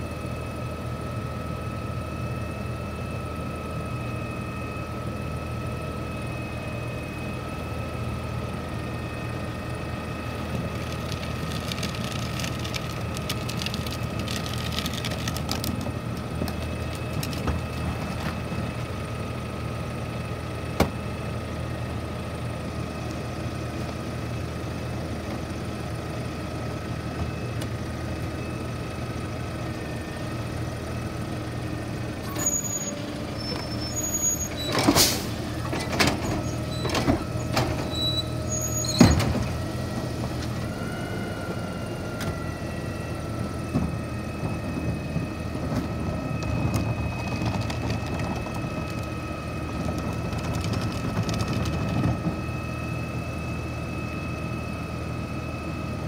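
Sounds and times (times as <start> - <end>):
thin steady whine: 0.0 - 32.0, 40.6 - 56.0
garbage truck diesel idling: 0.0 - 33.2.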